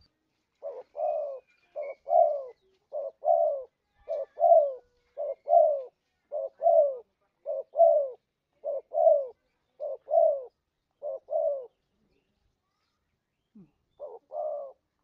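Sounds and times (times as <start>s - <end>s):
dove cooing: 0.6s - 11.8s, 13.9s - 15.0s.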